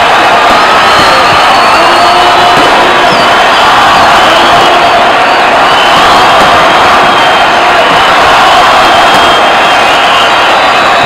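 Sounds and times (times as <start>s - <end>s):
crowd shouting and cheering: 0.0s - 11.0s.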